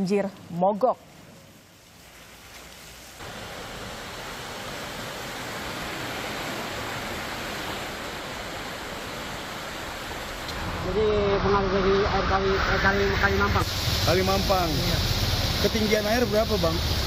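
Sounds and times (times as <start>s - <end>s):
heavy rain: 1.2s - 17.0s.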